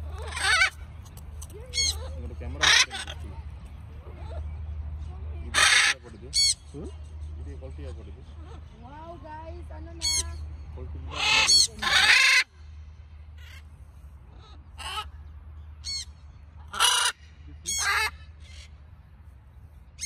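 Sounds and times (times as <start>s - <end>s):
parrots squawking: 0.0s - 0.9s, 1.6s - 4.6s, 5.5s - 6.7s, 9.9s - 10.4s, 11.0s - 12.5s, 14.3s - 15.2s, 15.8s - 18.7s.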